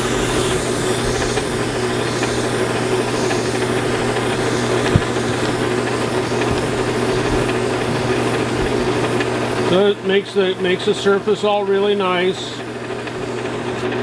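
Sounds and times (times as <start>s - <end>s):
metal lathe humming: 0.0s - 14.0s
sharp knock: 4.9s - 5.6s.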